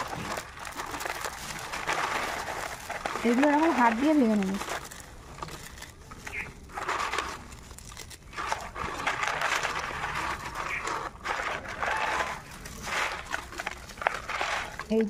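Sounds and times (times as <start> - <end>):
fried noodles crunching: 0.0 - 15.0.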